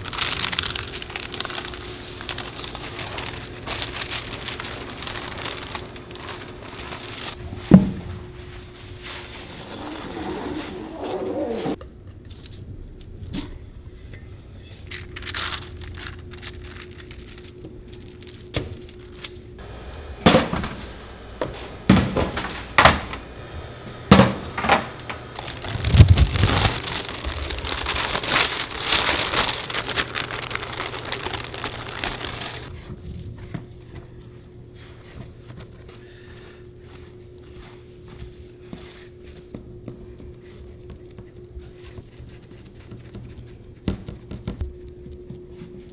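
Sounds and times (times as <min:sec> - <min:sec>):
faint steady hum: 0:12.8 - 0:45.9.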